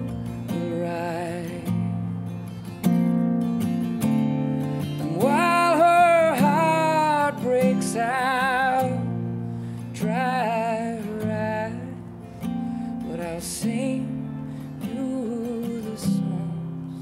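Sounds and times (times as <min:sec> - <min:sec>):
man singing: 0:00.0 - 0:02.0, 0:04.9 - 0:09.2, 0:09.9 - 0:12.1, 0:13.0 - 0:17.0
strummed acoustic guitar: 0:00.0 - 0:17.0.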